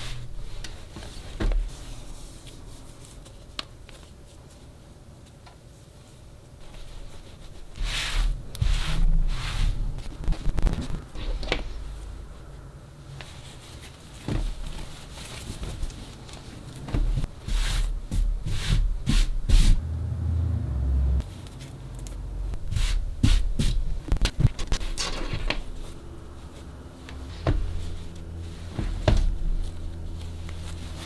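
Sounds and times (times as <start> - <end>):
fabric rustling: 5.9 - 19.8, 21.2 - 31.0.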